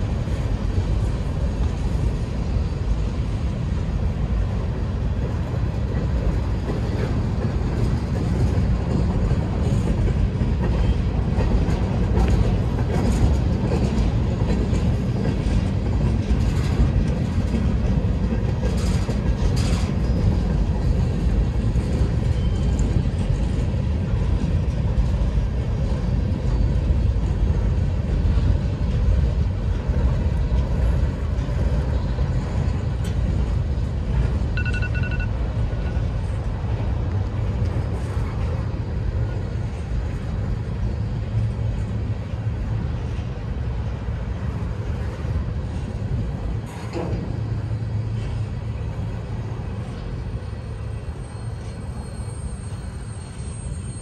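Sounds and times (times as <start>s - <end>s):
train clanks and squeals: 0.0s - 54.0s
train wheels rumbling on rails: 0.0s - 54.0s.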